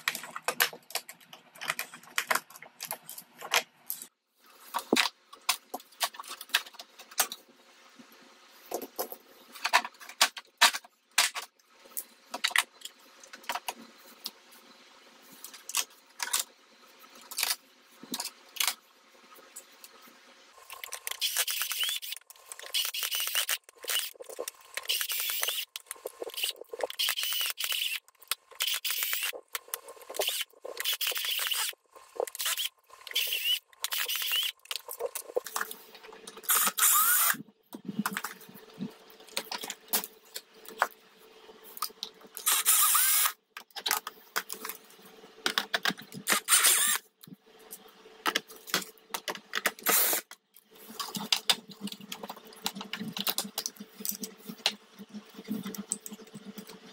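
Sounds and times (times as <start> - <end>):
cordless drill bursts: 36.5 - 37.4, 42.4 - 43.4, 46.3 - 47.0.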